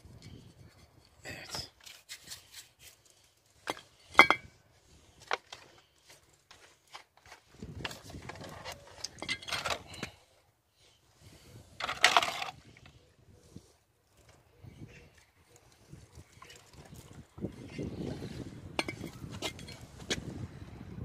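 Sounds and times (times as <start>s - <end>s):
plastic rustling and scraping: 5.1s - 10.2s.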